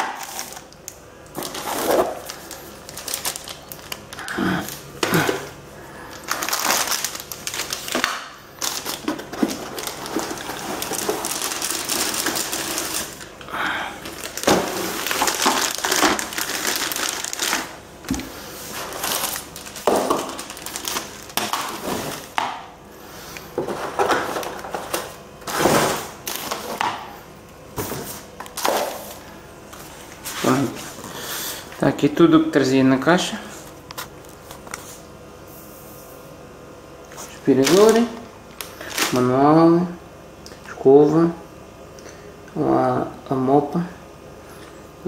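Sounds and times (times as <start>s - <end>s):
plastic bags crinkling: 0.0s - 22.4s, 23.6s - 26.9s, 37.2s - 39.4s.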